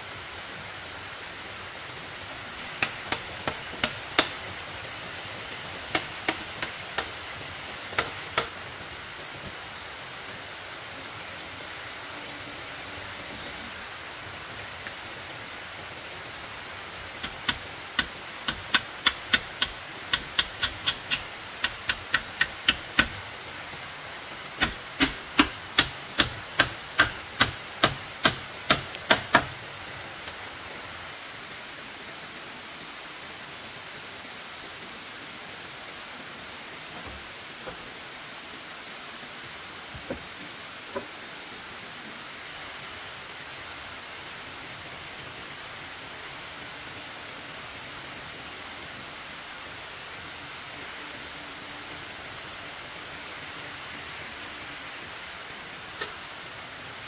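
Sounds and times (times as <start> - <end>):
steady rushing hiss: 0.0 - 57.0
sharp hand tool strikes: 2.6 - 4.4, 5.9 - 7.2, 7.9 - 8.6, 17.2 - 23.2, 24.6 - 29.5.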